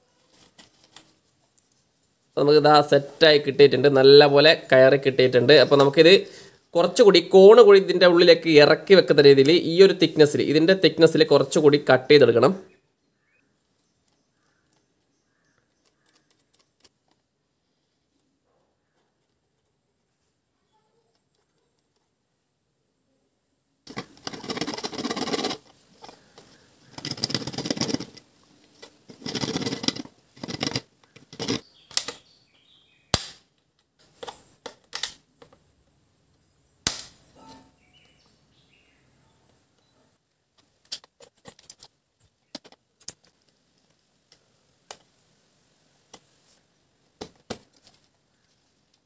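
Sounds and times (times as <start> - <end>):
hacksaw sawing plastic pipe: 23.9 - 25.6, 29.1 - 31.6
clicks and small knocks: 40.6 - 45.2.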